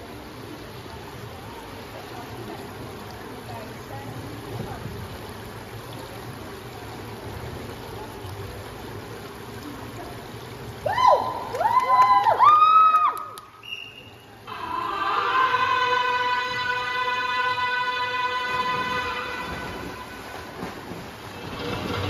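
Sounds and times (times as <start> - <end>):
water and air noise: 0.0 - 22.0
high-pitched whooping cheers: 10.8 - 13.5, 14.5 - 19.5.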